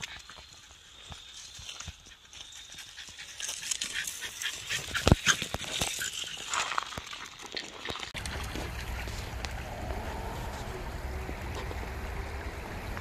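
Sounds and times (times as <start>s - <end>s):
steady low rush: 8.2s - 13.0s.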